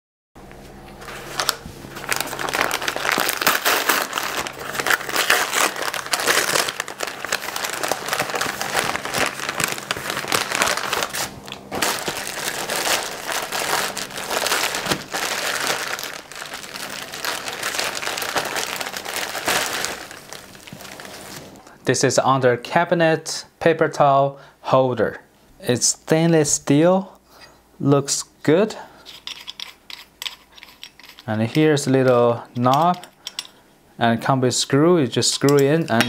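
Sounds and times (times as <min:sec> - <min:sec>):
paper mailer tearing: 0:01.0 - 0:21.6
plastic packaging crinkling: 0:01.0 - 0:21.7.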